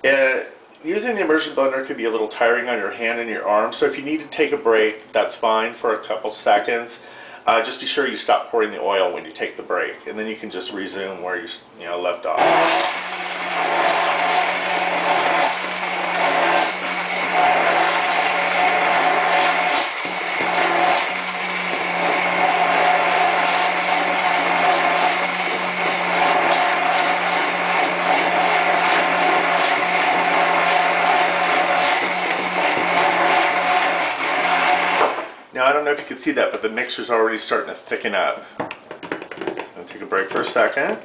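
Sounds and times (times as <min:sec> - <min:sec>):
immersion blender whirring: 0:12.4 - 0:35.5.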